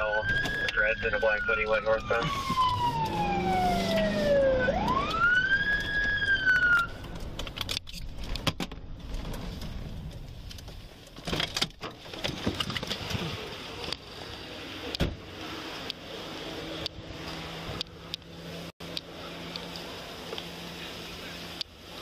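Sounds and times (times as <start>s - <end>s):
police siren wailing: 0.0s - 7.0s.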